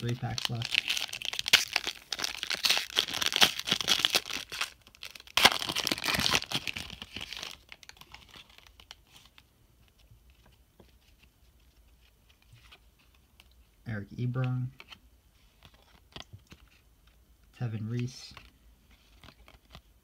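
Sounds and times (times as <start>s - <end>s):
foil wrapper crinkling and tearing: 0.0s - 9.0s.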